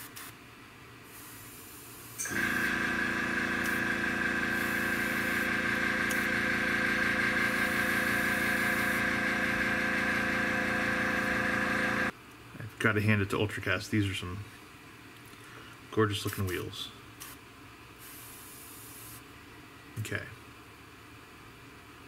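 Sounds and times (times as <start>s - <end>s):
compressor motor humming: 2.2s - 12.1s.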